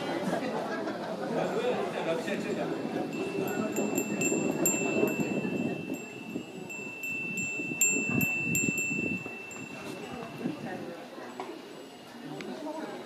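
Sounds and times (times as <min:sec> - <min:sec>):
metal wind chime ringing: 0:02.4 - 0:11.9.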